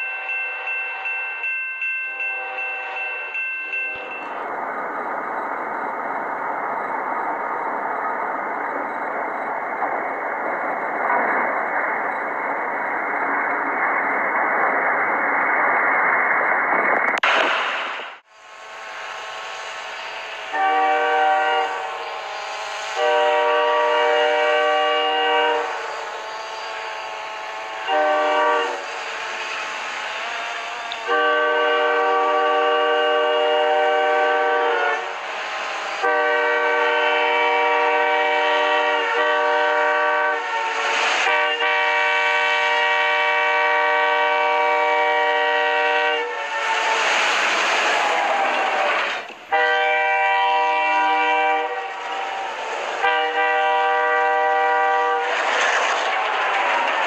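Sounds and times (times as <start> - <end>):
locomotive horn blasts: 0.0 - 1.2, 2.1 - 4.3, 20.4 - 28.9, 30.9 - 35.2, 36.0 - 47.1, 49.5 - 52.4, 53.0 - 55.3
train rushing through snow: 0.0 - 57.0.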